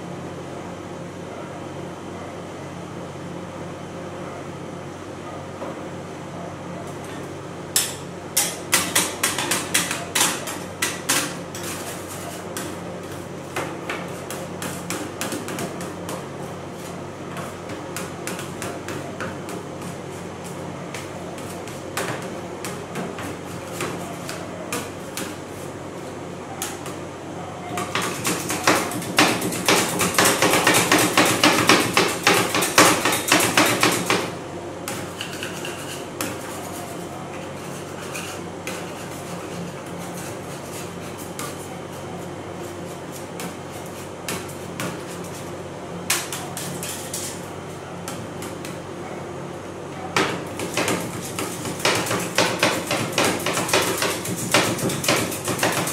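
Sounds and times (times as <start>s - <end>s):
metal spatulas chopping on steel: 7.8s - 11.8s, 27.8s - 34.3s, 50.2s - 55.9s.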